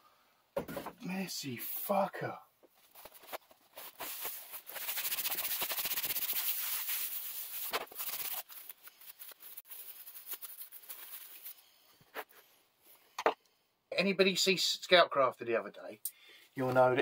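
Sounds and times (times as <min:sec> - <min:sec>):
paper towel scrubbing plastic mat: 0:03.0 - 0:11.4.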